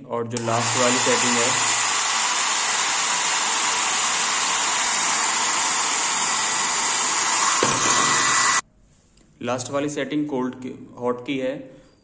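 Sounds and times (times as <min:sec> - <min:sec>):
hair dryer blowing: 0:00.4 - 0:08.6.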